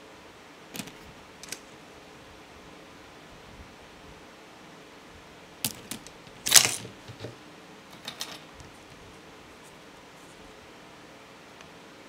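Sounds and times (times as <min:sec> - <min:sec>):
acrylic pieces clacking: 0:05.7 - 0:07.3.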